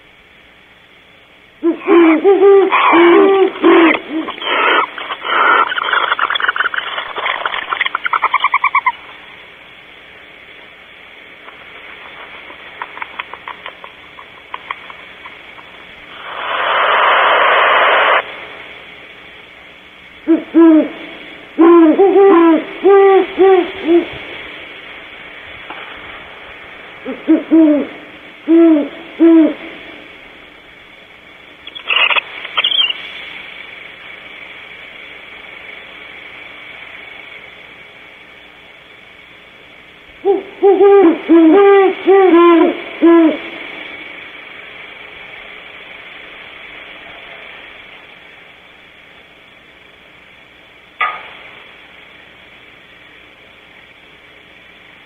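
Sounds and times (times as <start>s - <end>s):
barn owl hissing screech: 1.6s - 6.9s
owl stuttering notes: 1.6s - 9.2s, 20.2s - 24.3s, 27.0s - 30.1s, 31.6s - 33.0s, 40.2s - 43.6s
owls hooting: 1.6s - 9.2s, 20.2s - 24.4s, 27.0s - 30.1s, 31.6s - 33.0s, 40.2s - 43.7s.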